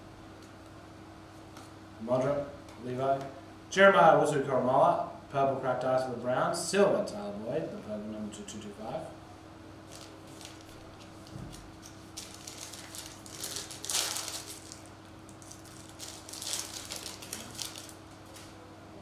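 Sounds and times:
foil wrapper ripping: 9.9s - 18.5s
foil wrapper crinkling: 9.9s - 18.6s.

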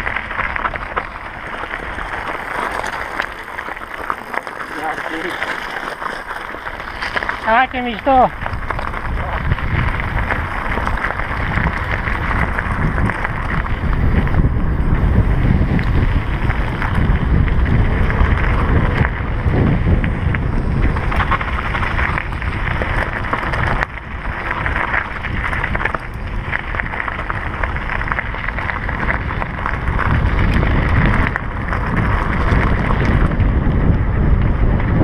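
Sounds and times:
bike tyres crunching on gravel: 0.0s - 35.0s
wind buffeting microphone: 0.0s - 35.0s.

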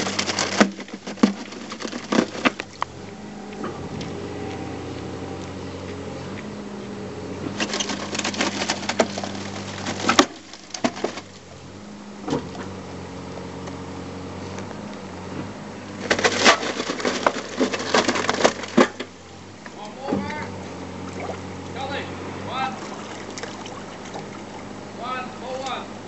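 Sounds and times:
concrete pipe cracking and crunching: 0.0s - 3.0s, 7.6s - 11.5s, 15.9s - 19.2s
machine engine humming: 0.0s - 26.0s.

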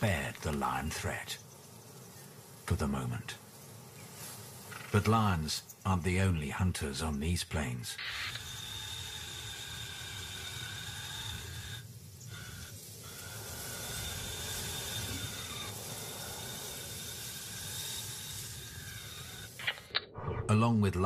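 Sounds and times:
steady hiss: 0.0s - 21.0s
low rumble: 19.8s - 21.0s.

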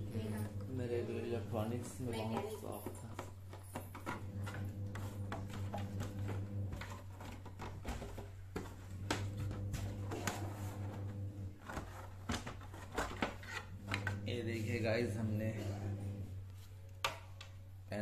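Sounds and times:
steady low hum: 13.6s - 17.0s.

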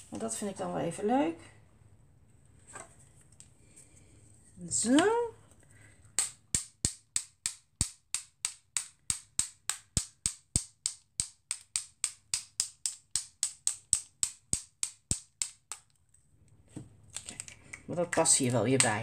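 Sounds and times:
paint marker tapping clicks: 6.2s - 15.9s.

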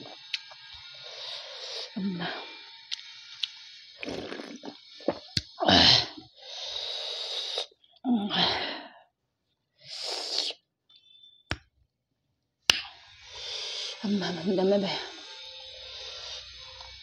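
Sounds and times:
soup sipped from bowl: 4.0s - 5.3s, 9.9s - 10.6s.

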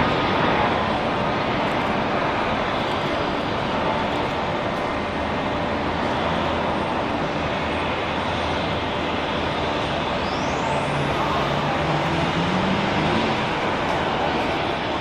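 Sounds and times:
jet engine rushing: 0.0s - 15.0s
high engine whine rising: 5.9s - 15.0s.

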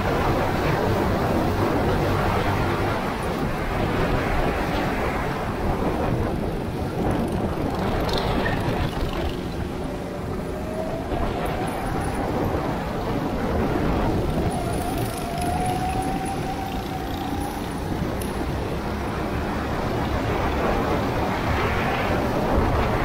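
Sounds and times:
go-kart engine running: 6.2s - 21.0s.

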